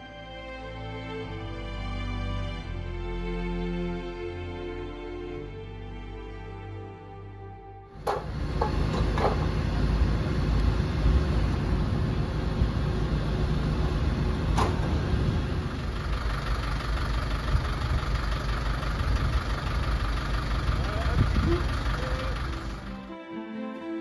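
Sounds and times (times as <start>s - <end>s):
music: 0.0s - 8.1s, 22.4s - 24.0s
fire engines running: 7.9s - 24.0s
sharp knocks: 8.0s - 9.5s.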